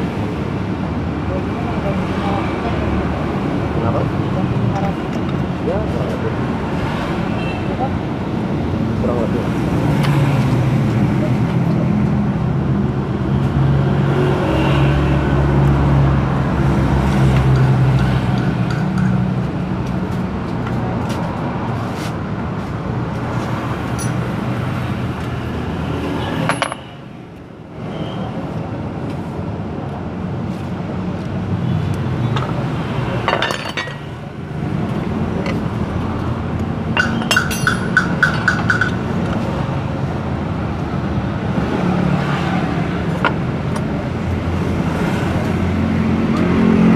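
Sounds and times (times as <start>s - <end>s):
metal tools clinking: 24.0s - 24.2s, 26.5s - 26.9s, 33.2s - 34.1s, 37.0s - 39.0s.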